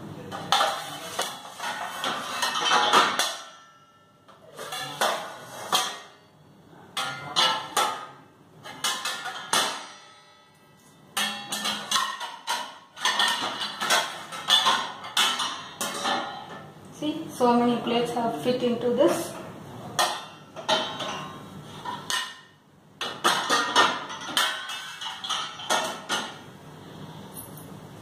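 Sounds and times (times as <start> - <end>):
metal plates and pans clattering: 0.2 - 6.4, 7.0 - 10.5, 11.1 - 16.7, 20.0 - 26.5.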